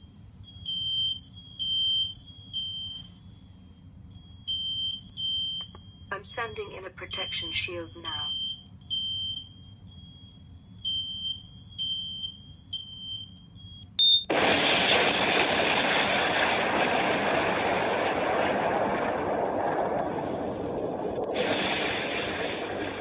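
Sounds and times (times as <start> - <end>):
high electronic alarm beeps: 0.0 - 14.3
explosion with long rumble: 14.3 - 23.0.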